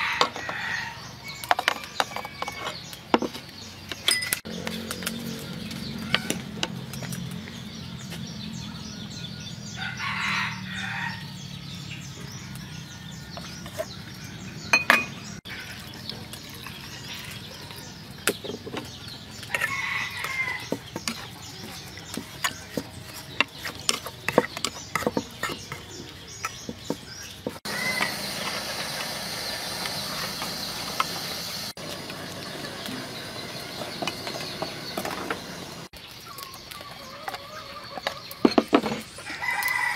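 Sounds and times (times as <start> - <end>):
wooden spoon scraping a pot: 1.5 - 2.9, 18.5 - 29.1
chickens calling: 4.4 - 39.9.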